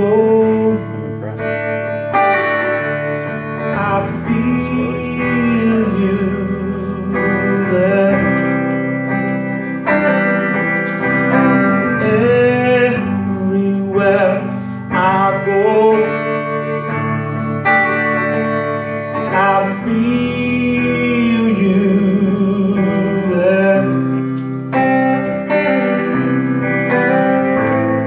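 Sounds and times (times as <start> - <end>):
man singing long notes: 0.0 - 1.5, 3.6 - 8.6, 11.9 - 16.5, 19.3 - 24.2
acoustic guitars playing: 0.0 - 28.0.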